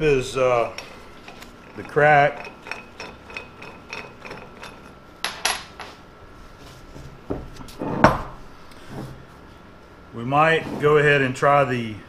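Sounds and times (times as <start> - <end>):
metal parts clattering on workbench: 0.8 - 6.0.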